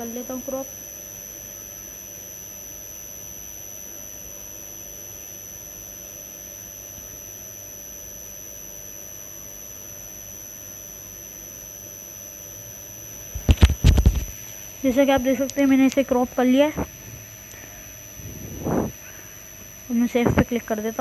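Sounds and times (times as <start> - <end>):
background hiss and hum: 0.0 - 21.0
high whine: 12.0 - 21.0.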